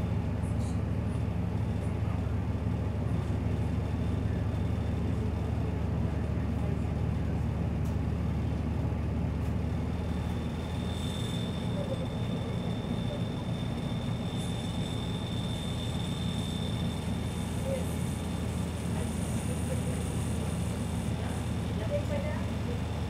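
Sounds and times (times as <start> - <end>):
bus engine drone: 0.0 - 23.0
road noise: 0.0 - 23.0.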